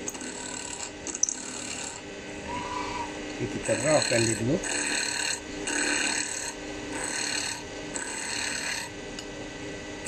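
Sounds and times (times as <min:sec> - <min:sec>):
chisel scraping spinning wood: 0:03.6 - 0:08.9.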